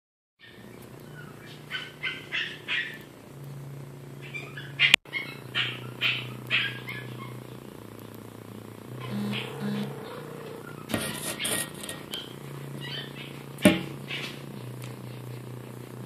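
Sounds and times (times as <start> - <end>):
kitten hissing: 8.9 - 13.4.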